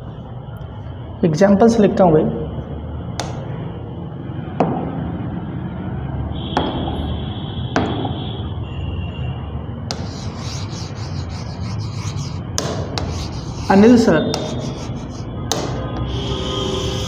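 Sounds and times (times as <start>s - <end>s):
pen scratching across screen: 9.9s - 15.3s.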